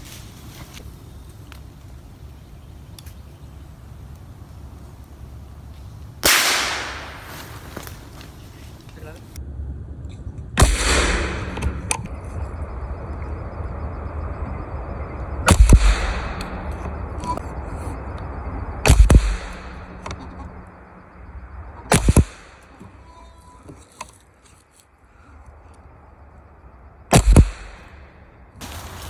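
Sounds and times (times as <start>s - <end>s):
rifle shots: 6.2s - 7.2s, 10.6s - 11.7s, 15.5s - 16.4s, 18.8s - 19.8s, 21.9s - 22.6s, 27.1s - 27.9s.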